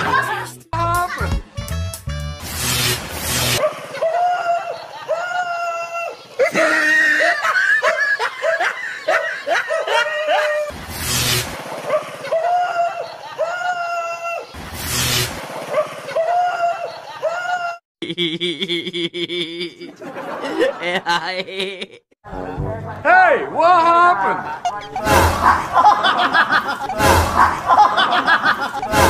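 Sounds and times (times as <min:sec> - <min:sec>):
high laughing voice: 0:03.6 - 0:10.7, 0:12.1 - 0:14.5, 0:16.0 - 0:22.1, 0:23.9 - 0:29.0
bursts of noise: 0:24.9 - 0:29.0.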